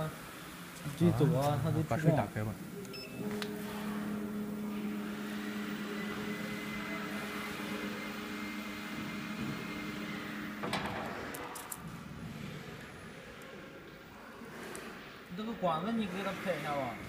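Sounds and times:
laser cutter humming: 0:00.0 - 0:13.2.

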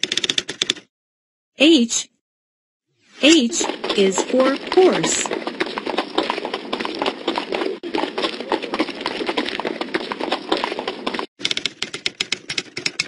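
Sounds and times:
horse hooves galloping: 0:03.3 - 0:13.0.

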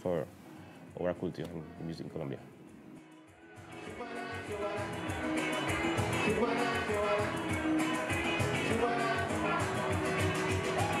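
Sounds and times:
band music with plucked guitar: 0:03.6 - 0:11.0.

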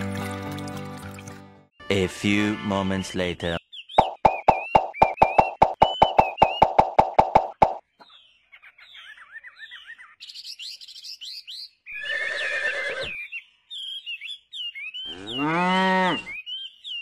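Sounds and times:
small birds chirping: 0:03.5 - 0:17.0
cow mooing: 0:15.1 - 0:16.4.

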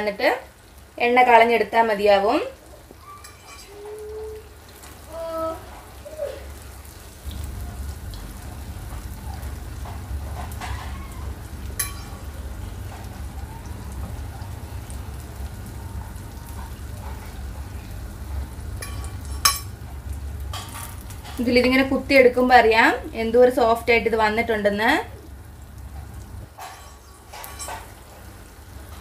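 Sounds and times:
food sizzling in hot oil: 0:00.0 - 0:29.0.

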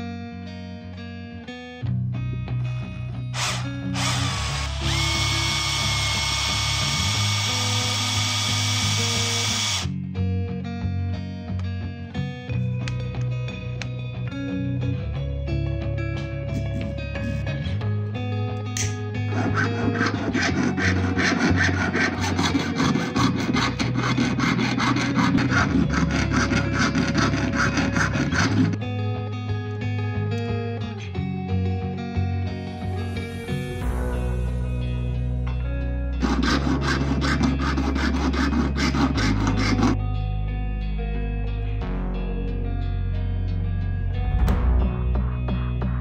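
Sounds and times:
electric drill whining: 0:03.4 - 0:10.0
fine saw cutting wire: 0:18.8 - 0:28.8, 0:36.2 - 0:40.0.

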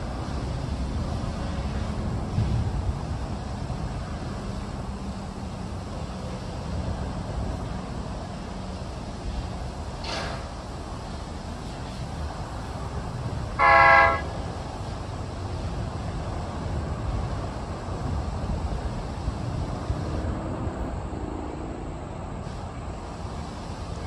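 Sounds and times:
steady low rumble: 0:00.0 - 0:23.8
short horn toot: 0:13.6 - 0:14.3.

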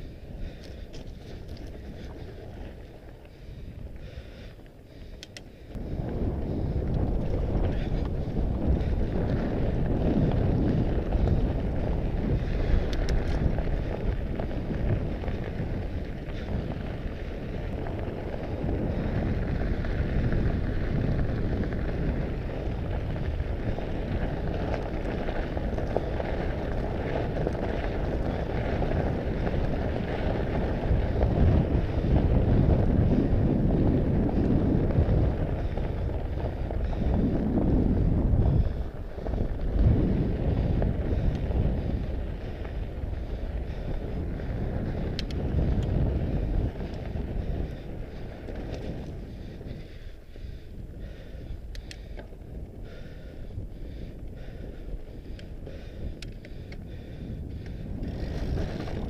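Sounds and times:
bike tyres crunching on gravel: 0:00.0 - 0:59.0
wind buffeting microphone: 0:00.0 - 0:59.0.

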